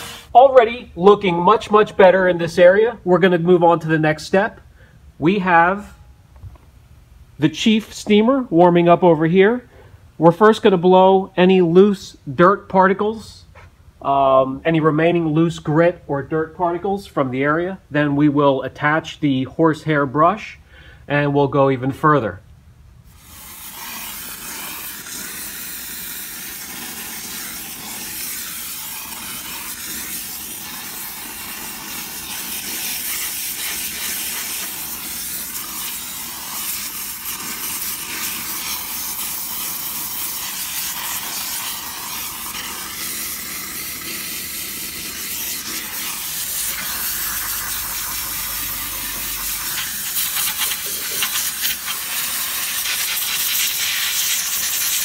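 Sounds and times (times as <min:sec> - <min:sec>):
steam cleaner hissing: 0:00.0 - 0:00.6, 0:23.1 - 0:55.0.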